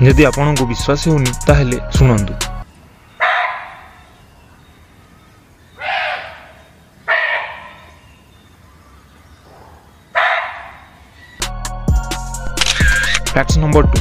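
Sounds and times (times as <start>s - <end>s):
deer barking: 3.2s - 4.2s, 5.8s - 8.0s, 9.4s - 11.4s.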